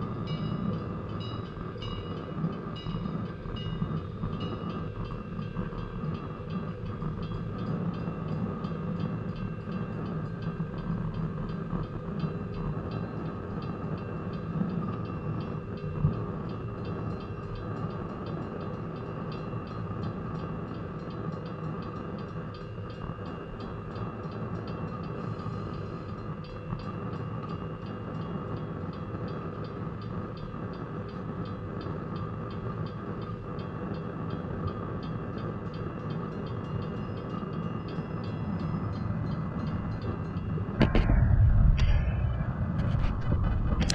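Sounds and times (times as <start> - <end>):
railroad cars rumbling: 0.0 - 18.2, 38.2 - 43.9
railroad crossing bell ringing: 0.0 - 40.8
sharp knock: 40.8 - 43.9.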